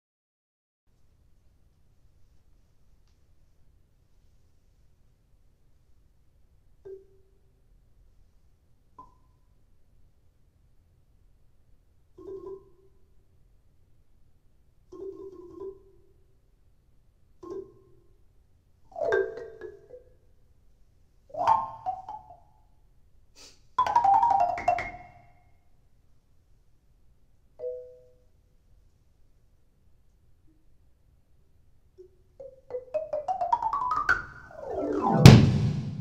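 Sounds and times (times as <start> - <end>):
solo marimba: 18.9 - 20.0, 21.3 - 22.3, 23.8 - 25.2, 27.6 - 28.1, 32.4 - 35.7.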